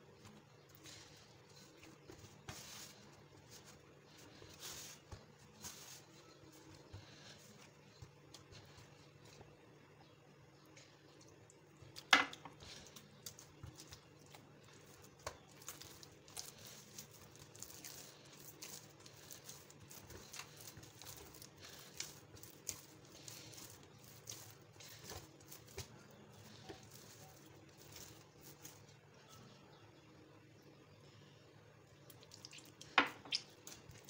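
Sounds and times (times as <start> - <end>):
dough slapping and squishing: 0.0 - 29.3, 32.0 - 34.0.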